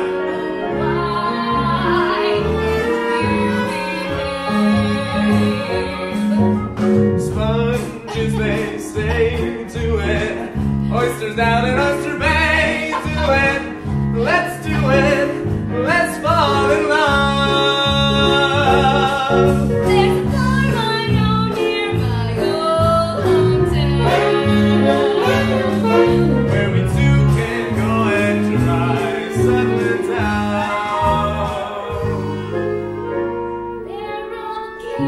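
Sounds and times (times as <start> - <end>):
instrumental accompaniment with bass: 0.0 - 35.0
woman and man singing: 7.2 - 32.5.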